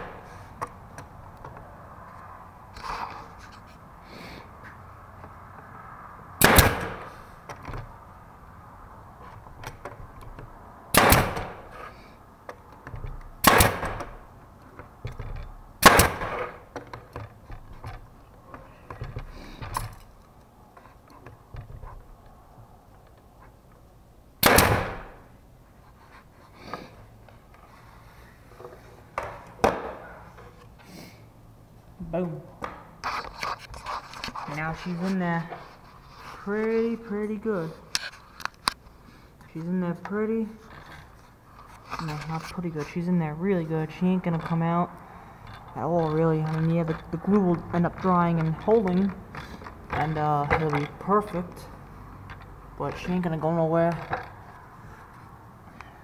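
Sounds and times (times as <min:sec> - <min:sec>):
pneumatic nailer firing into wood: 0:06.4 - 0:07.3, 0:10.9 - 0:11.8, 0:13.4 - 0:14.2, 0:15.8 - 0:16.7, 0:24.4 - 0:25.3.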